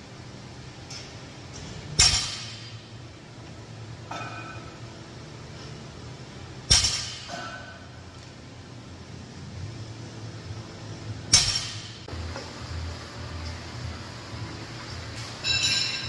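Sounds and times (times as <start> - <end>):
light metal clink: 15.2 - 16.0.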